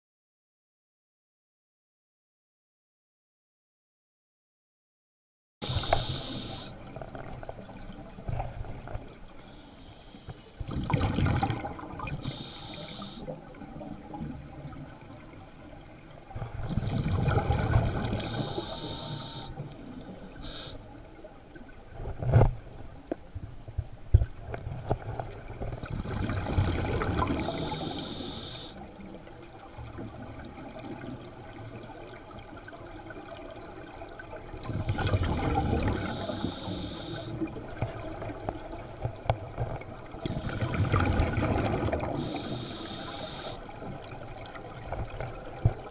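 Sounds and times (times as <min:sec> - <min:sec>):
regulator breathing hiss: 0:05.6 - 0:06.8, 0:12.2 - 0:13.3, 0:18.2 - 0:19.6, 0:20.4 - 0:20.8, 0:27.4 - 0:28.8, 0:35.9 - 0:37.4, 0:42.2 - 0:43.7
exhaled bubbles rumbling: 0:10.6 - 0:12.3, 0:13.4 - 0:18.7, 0:23.7 - 0:28.0, 0:28.9 - 0:36.4, 0:37.4 - 0:42.6.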